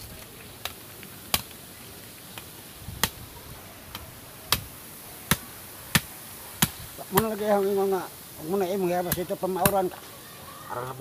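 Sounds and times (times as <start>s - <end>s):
machete chopping bamboo: 0.6s - 1.6s, 2.3s - 3.2s, 3.9s - 7.4s, 9.0s - 9.9s.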